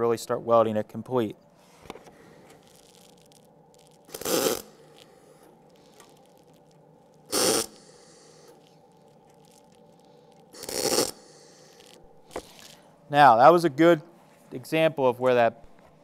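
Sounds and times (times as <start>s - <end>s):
welding arc crackling: 2.5s - 12.8s.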